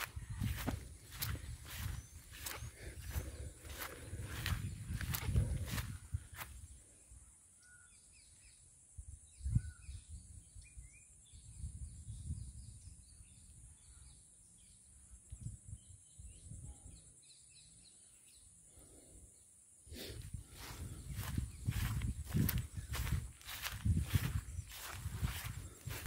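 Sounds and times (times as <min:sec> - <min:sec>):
soft low thumps: 0:00.0 - 0:06.0, 0:20.7 - 0:26.0
small birds chirping: 0:00.0 - 0:26.0.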